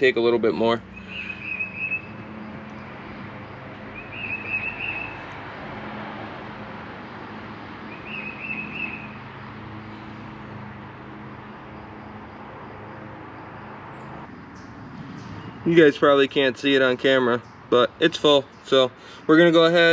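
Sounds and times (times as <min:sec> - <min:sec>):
songbird trilling: 0:00.9 - 0:02.9, 0:03.9 - 0:05.4, 0:07.8 - 0:09.2, 0:13.9 - 0:15.8.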